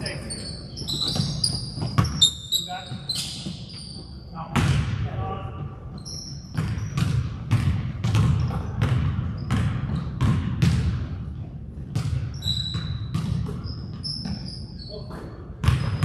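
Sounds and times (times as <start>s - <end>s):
sneakers squeaking: 0.0s - 16.0s
basketball dribbling on gym floor: 0.8s - 5.0s, 5.6s - 14.5s, 15.6s - 16.0s.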